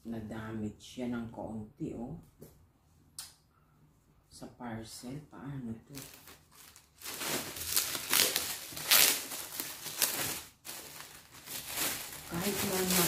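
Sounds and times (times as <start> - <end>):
plastic wrapping rustling: 5.9 - 13.0.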